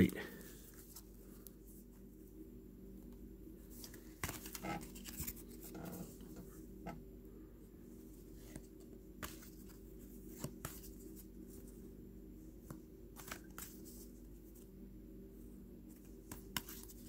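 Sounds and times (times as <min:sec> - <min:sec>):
trading cards being flipped: 0:03.7 - 0:06.2, 0:12.7 - 0:14.0, 0:16.0 - 0:17.0.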